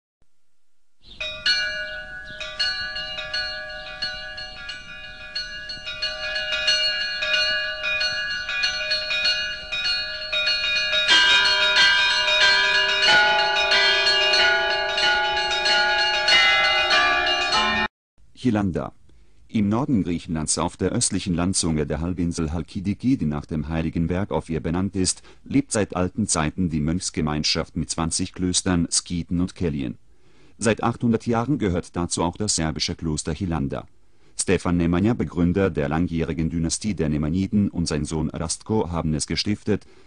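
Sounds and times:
church bells pealing: 0:01.2 - 0:17.9
deeper bell ringing: 0:01.2 - 0:17.9.

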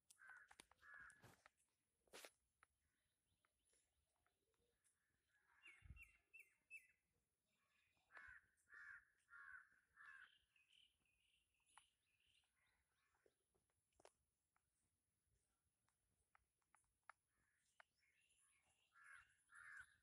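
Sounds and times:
faint crows cawing: 0:00.1 - 0:02.3, 0:04.2 - 0:14.2, 0:16.2 - 0:20.0
birds chirping: 0:02.6 - 0:20.0.

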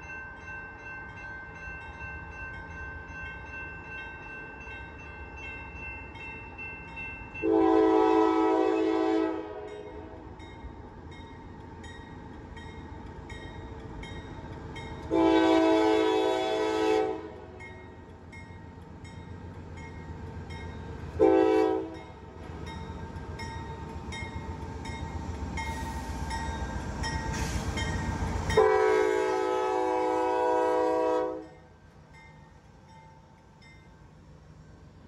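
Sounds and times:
train rumbling: 0:00.0 - 0:35.0
locomotive air horn blasts: 0:07.4 - 0:10.2, 0:15.1 - 0:17.6, 0:21.2 - 0:22.0, 0:28.6 - 0:31.6.

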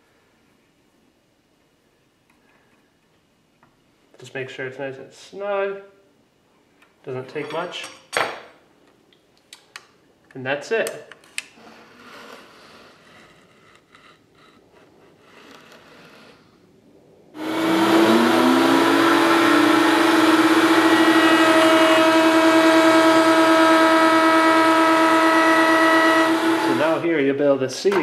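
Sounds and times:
wood router motor whine: 0:17.4 - 0:27.1.

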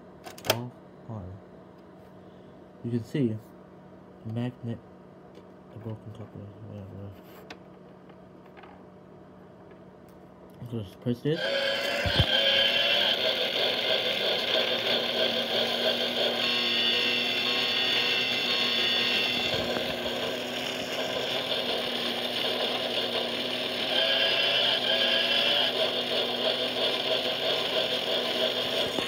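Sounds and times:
toy train motor running: 0:11.4 - 0:29.0.

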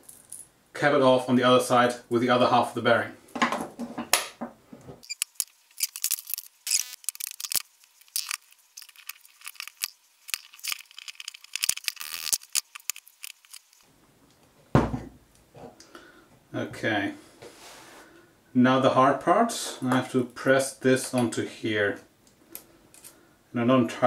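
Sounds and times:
metal parts clinking and rattling: 0:05.0 - 0:13.8, 0:22.9 - 0:23.2.

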